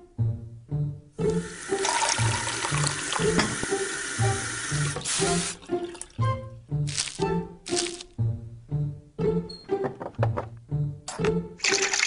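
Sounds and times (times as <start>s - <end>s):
bouncy background music: 0.0s - 12.0s
tap water running into sink: 1.3s - 6.3s, 11.6s - 12.0s.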